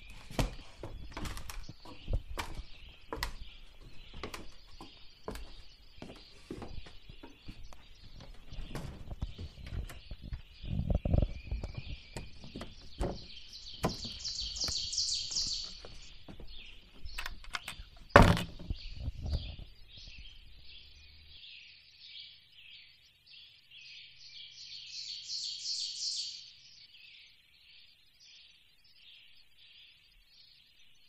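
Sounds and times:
high bird chorus: 0.0 - 31.0
songbirds singing: 0.0 - 31.0
loud thump: 18.2 - 18.7.

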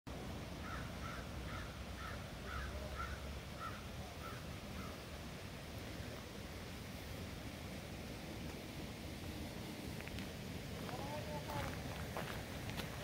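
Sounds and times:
crow cawing: 0.6 - 5.0.

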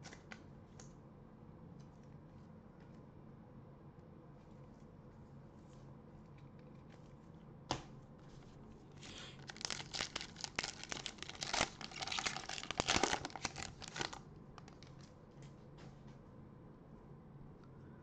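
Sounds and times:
foil wrapper tearing and crinkling: 9.4 - 15.1.

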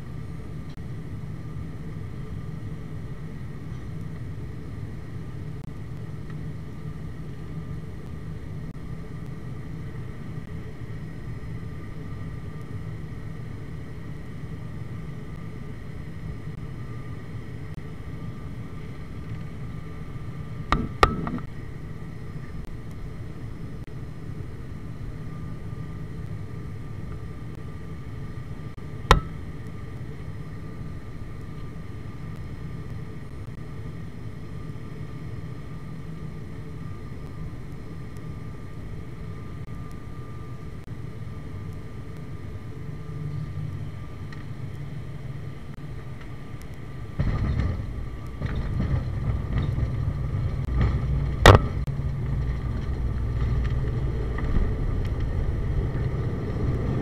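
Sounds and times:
aircraft engine drone: 0.0 - 57.0
wheels rumbling on runway: 0.0 - 57.0
whining tones: 1.5 - 57.0
sharp knock: 29.1 - 29.4.

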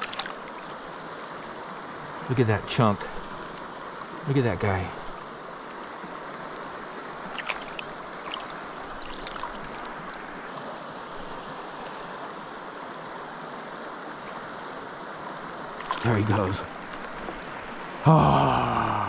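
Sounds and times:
small water splashes and drips: 0.0 - 1.5, 5.2 - 10.6, 15.6 - 18.0
river current running: 0.0 - 19.0.

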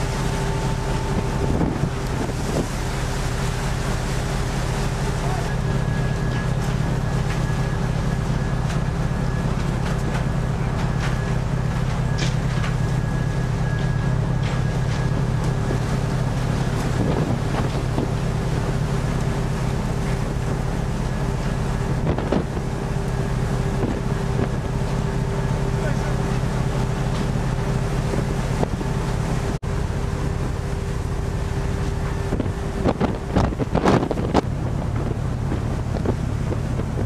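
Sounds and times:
wind buffeting microphone: 0.0 - 7.2, 14.7 - 25.1, 27.2 - 37.0
ship engine droning: 0.0 - 37.0.

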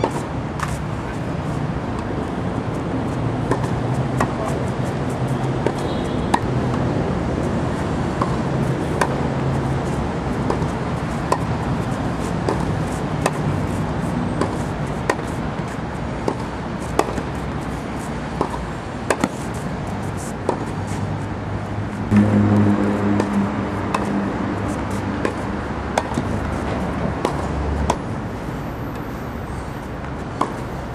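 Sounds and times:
tennis balls bouncing on clay: 3.1 - 6.8, 8.2 - 13.7, 14.3 - 19.7, 20.4 - 20.8, 22.9 - 28.1, 30.0 - 30.7
tennis balls struck by racket: 3.4 - 4.7, 5.4 - 6.8, 8.2 - 13.8, 14.4 - 21.0, 21.9 - 28.1, 30.0 - 30.7.

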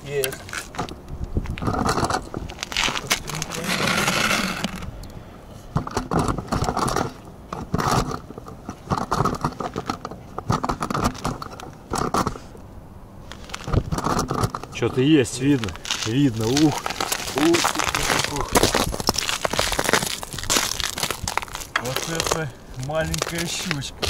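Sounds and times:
scraping and crunching on ice: 1.6 - 4.9, 13.2 - 24.0.

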